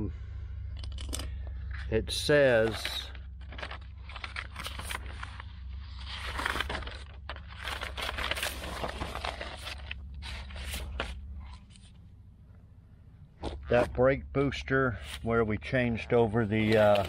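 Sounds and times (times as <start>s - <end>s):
steady low hum: 0.0s - 17.0s
handling rustles and clicks: 0.7s - 5.5s.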